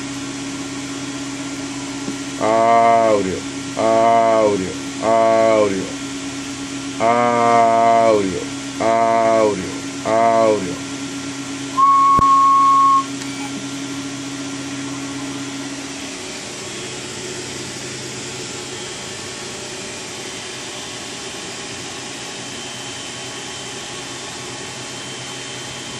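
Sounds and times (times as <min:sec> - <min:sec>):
low hum: 0:11.7 - 0:15.8
electronic beep tone: 0:11.8 - 0:13.6.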